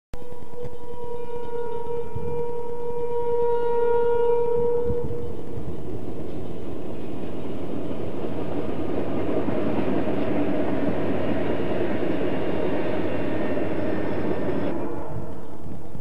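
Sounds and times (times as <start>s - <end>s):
train wheels rumbling on rails: 0.2s - 16.0s
diesel locomotive engines running: 5.0s - 16.0s.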